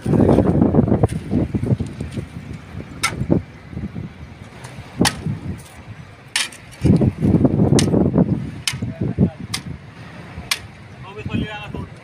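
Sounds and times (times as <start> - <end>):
hoe knocking on steel bars: 8.6 - 8.9.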